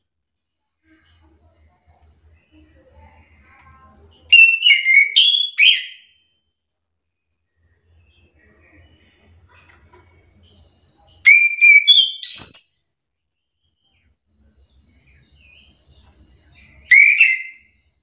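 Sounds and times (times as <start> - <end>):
thrush singing whistled phrases: 4.3 - 6.1, 11.2 - 12.8, 14.8 - 17.8.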